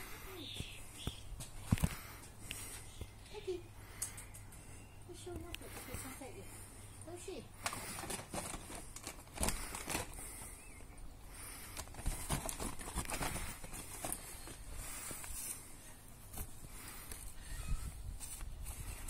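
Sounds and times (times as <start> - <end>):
plastic mesh rustling: 7.6 - 10.5, 11.8 - 15.7.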